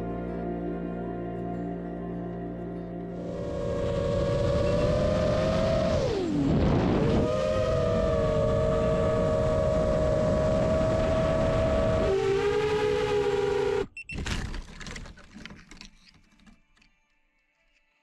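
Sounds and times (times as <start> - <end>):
drone propellers whining: 3.2 - 13.9
rushing noise: 3.2 - 13.9.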